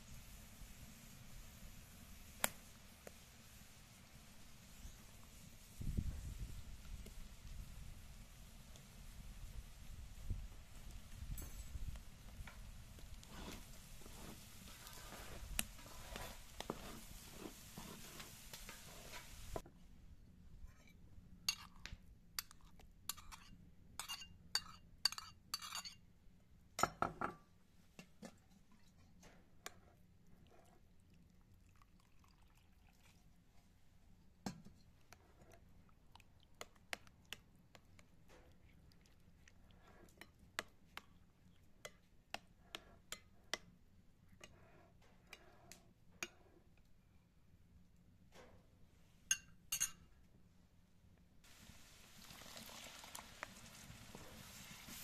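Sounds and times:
metal spoon scraping china: 22.4s - 26.0s
spoon clinking while stirring: 22.4s - 26.0s, 49.3s - 50.1s.

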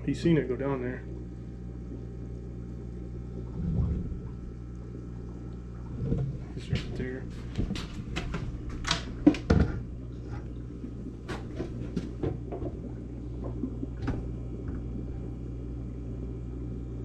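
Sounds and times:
steady low hum: 0.0s - 17.0s
sharp knocks and clicks: 6.0s - 9.8s.

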